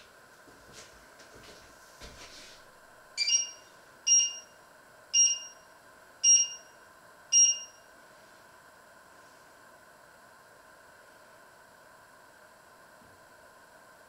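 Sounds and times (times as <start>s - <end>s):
short two-toned hob beeps: 3.2s - 4.5s, 5.2s - 5.6s, 6.2s - 6.7s, 7.3s - 7.8s.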